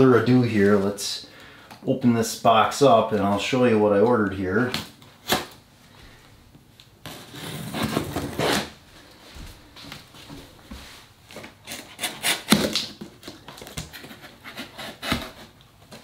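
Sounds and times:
cardboard rustling: 0:07.0 - 0:16.0.

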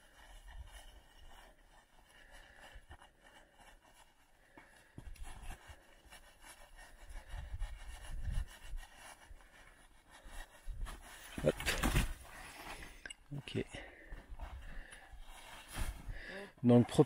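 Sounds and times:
gloved hand scraping snow: 0:05.1 - 0:12.8.

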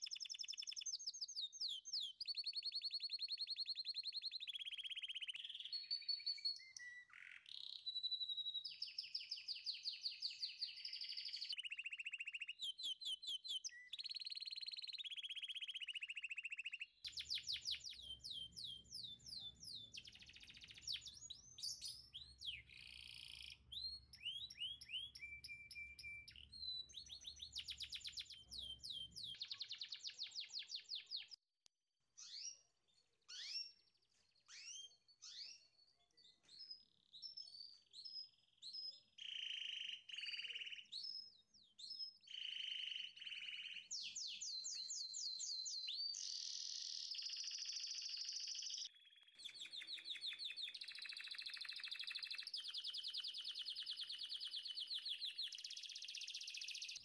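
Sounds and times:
songbirds chirping and trilling: 0:00.0 - 0:31.4, 0:32.2 - 0:57.0.

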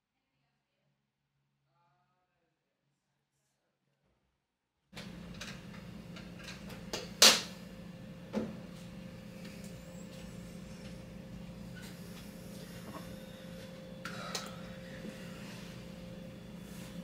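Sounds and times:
low hum of air unit: 0:05.0 - 0:17.0.

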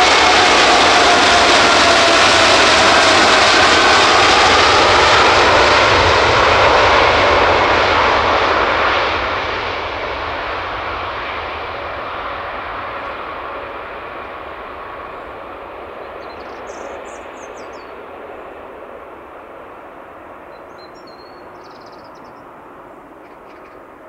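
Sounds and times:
jet engines at takeoff: 0:00.0 - 0:24.0.

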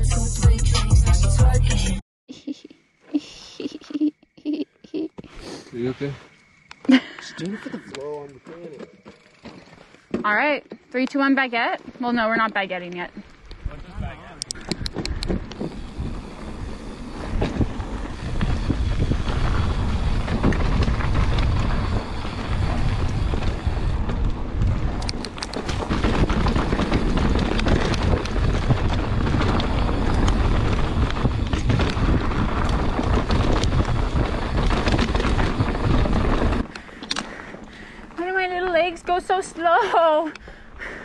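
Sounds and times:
bike tyres rolling on dirt: 0:05.3 - 0:41.0
bike knocking and rattling: 0:07.7 - 0:41.0
wind buffeting the microphone: 0:11.4 - 0:41.0.

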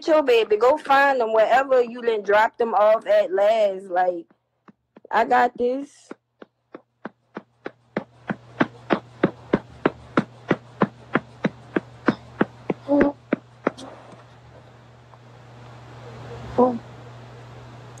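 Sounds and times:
steady low hum: 0:00.0 - 0:18.0
small voice sound: 0:12.8 - 0:14.0, 0:16.5 - 0:17.0.

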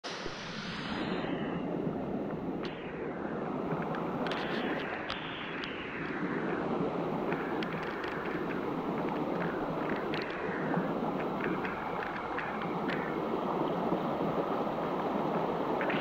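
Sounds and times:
stream water flowing over rocks: 0:07.0 - 0:16.0.

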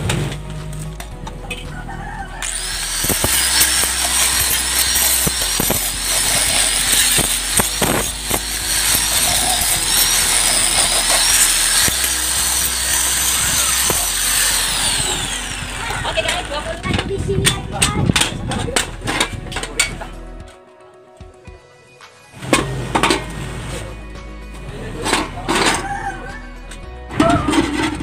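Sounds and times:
angle grinder whine: 0:02.4 - 0:16.8.

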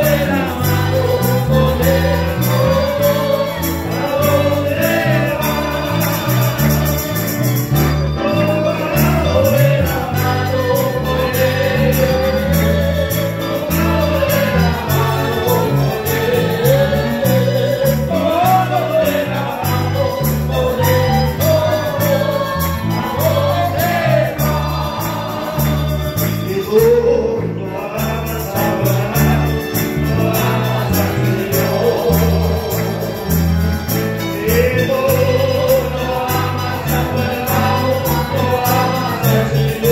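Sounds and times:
accordion: 0:00.0 - 0:39.9
acoustic guitars: 0:00.0 - 0:39.9
congregation singing a hymn: 0:00.0 - 0:39.9
rhythmic bass line: 0:00.0 - 0:39.9.

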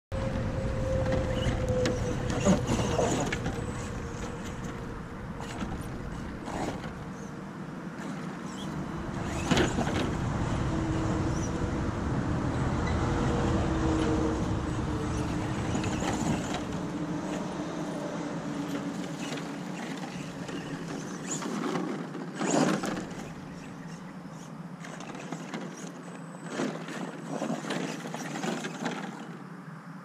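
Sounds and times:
electric motor whining: 0:00.2 - 0:07.3, 0:08.0 - 0:24.0.

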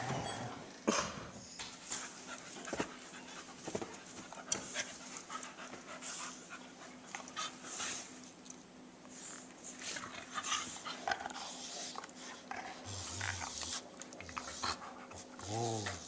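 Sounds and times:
dog panting: 0:01.9 - 0:08.2.

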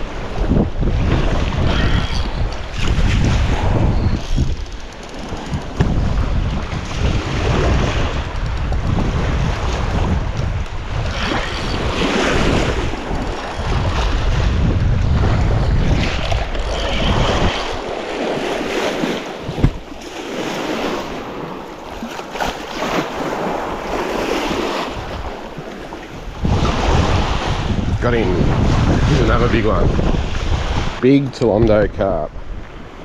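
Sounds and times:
wind buffeting microphone: 0:00.0 - 0:33.0
lake water splashing on shore: 0:05.2 - 0:27.8.

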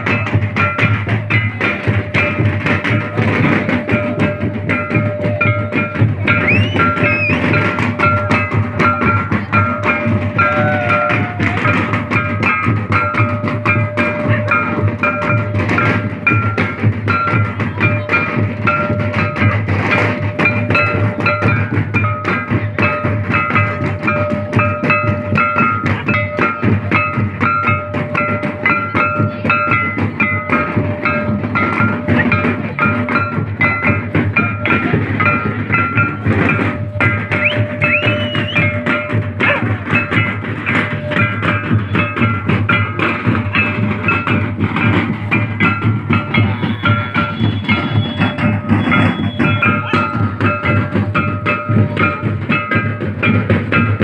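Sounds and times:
fast drumming: 0:00.0 - 0:54.0
repeating short high notes: 0:45.7 - 0:50.7.

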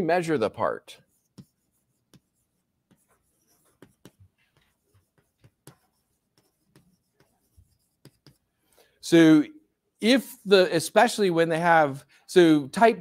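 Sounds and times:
chalk writing on blackboard: 0:01.0 - 0:08.8.

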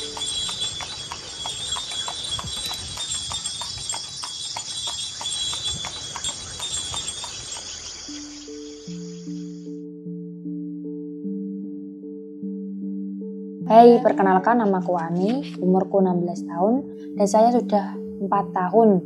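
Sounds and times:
regular clopping tick: 0:00.0 - 0:08.8
insect chorus: 0:00.0 - 0:09.7.

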